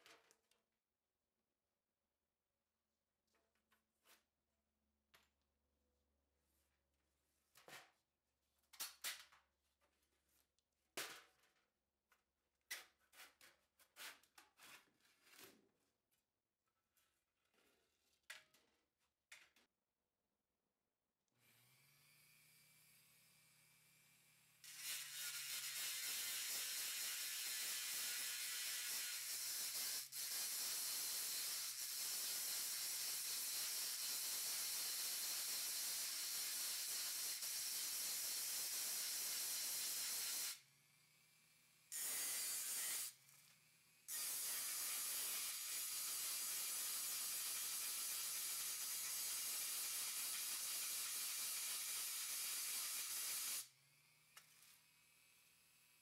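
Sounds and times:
rotary tool grinding metal: 0:24.6 - 0:40.6, 0:41.9 - 0:43.2, 0:44.0 - 0:53.7.

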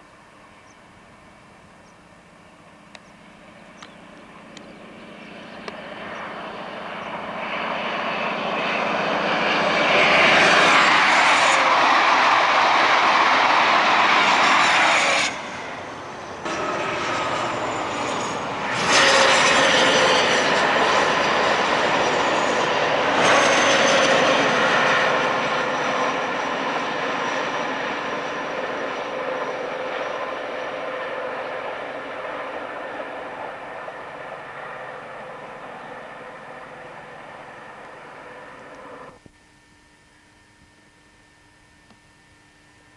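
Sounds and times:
high engine whine: 0:00.0 - 0:42.9
train wheels and air rushing: 0:09.9 - 0:26.5.

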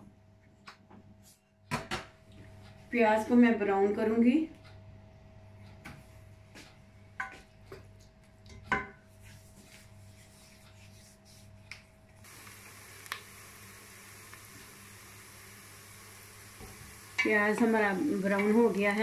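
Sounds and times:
onions sizzling: 0:12.2 - 0:19.0
wooden spoon knocking and scraping pot: 0:16.6 - 0:19.0.

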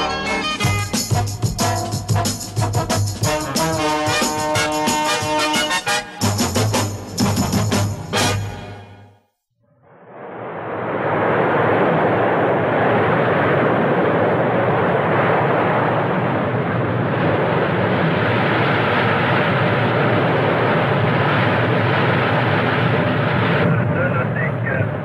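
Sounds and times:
wind and sea rushing: 0:10.0 - 0:23.8.

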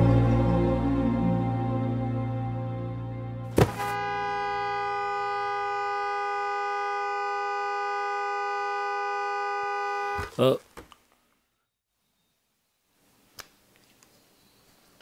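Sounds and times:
sharp thud: 0:03.5 - 0:04.0
two-tone car horn blaring: 0:03.5 - 0:10.3.

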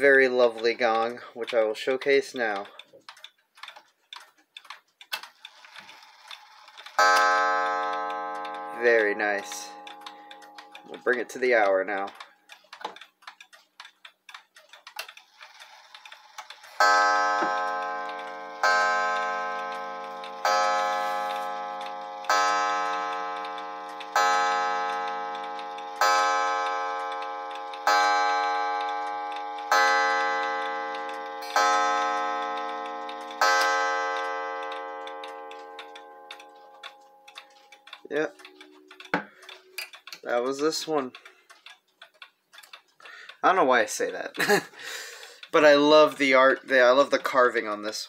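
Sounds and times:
clock ticking: 0:00.0 - 0:48.0
clock gong striking: 0:16.8 - 0:36.8.

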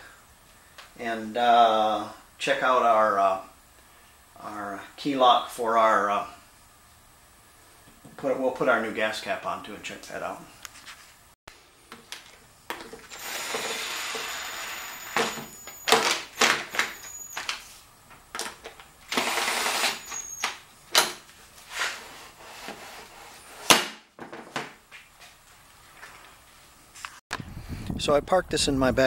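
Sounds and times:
cordless drill running: 0:12.9 - 0:17.5, 0:19.1 - 0:20.6.

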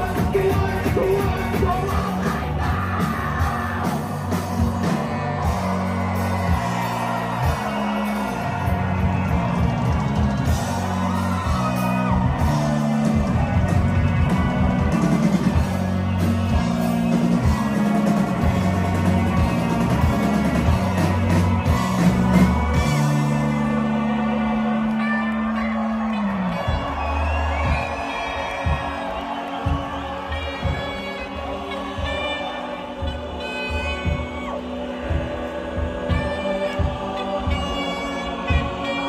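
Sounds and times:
person singing: 0:00.0 - 0:04.1, 0:29.8 - 0:39.0
heavy bass line: 0:00.0 - 0:39.0
live rock band playing: 0:00.0 - 0:39.0.

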